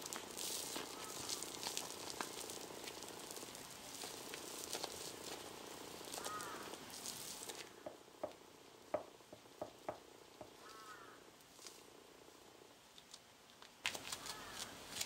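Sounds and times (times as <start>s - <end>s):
clay crackling as pulled apart: 12.9s - 15.0s.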